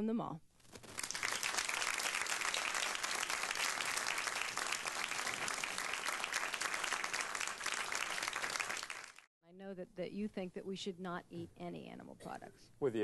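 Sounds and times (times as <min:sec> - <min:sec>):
audience applauding: 0:00.9 - 0:09.3.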